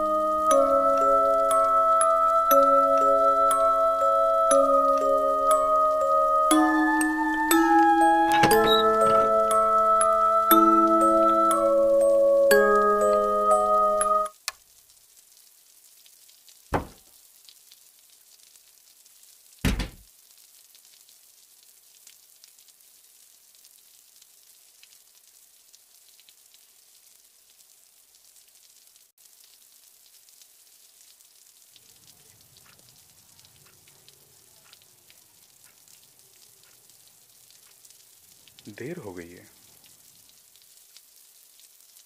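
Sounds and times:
faint rain hiss: 0.0s - 42.0s
loud sudden thuds: 16.7s - 17.0s, 19.6s - 20.0s.

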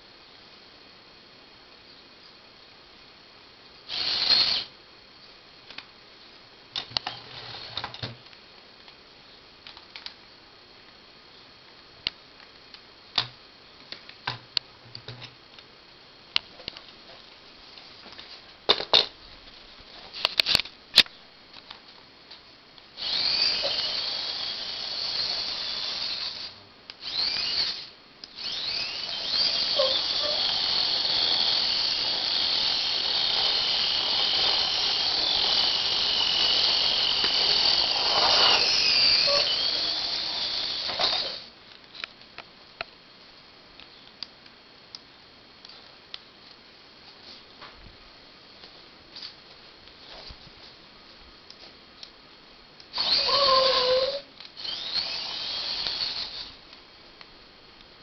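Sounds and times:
small electric motors whining: 3.9s - 4.7s, 23.0s - 41.5s, 52.9s - 56.6s.

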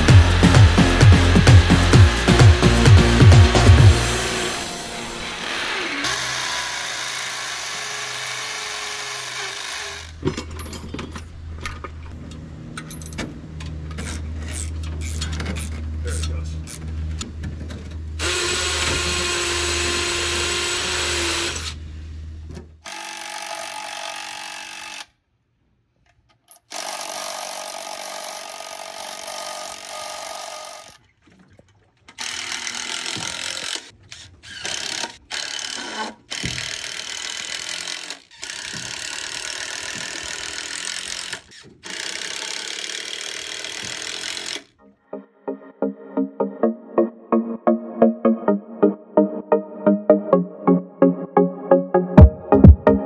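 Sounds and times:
cordless drill drilling into wood: 4.0s - 10.2s, 18.2s - 21.8s, 22.8s - 25.1s, 26.7s - 31.0s, 32.2s - 44.8s.

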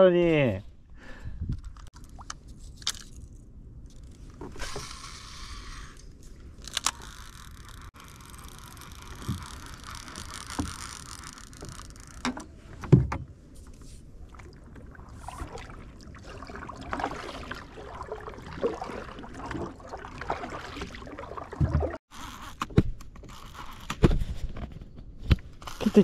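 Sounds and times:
paddle splashing water: 13.4s - 22.0s.

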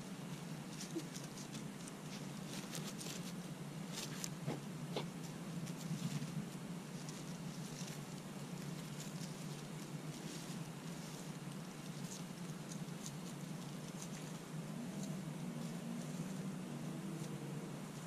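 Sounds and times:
dog moving over dry grass: 0.0s - 18.0s
footsteps on dry leaves: 0.0s - 18.0s
steady low hum: 0.0s - 18.0s.

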